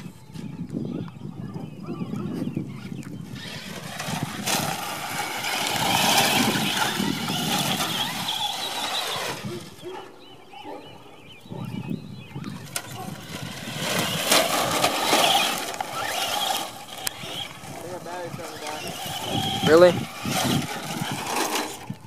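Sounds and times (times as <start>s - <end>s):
electric motors whining: 1.7s - 22.0s
tyres scrabbling over gravel: 3.2s - 10.6s, 12.4s - 22.0s.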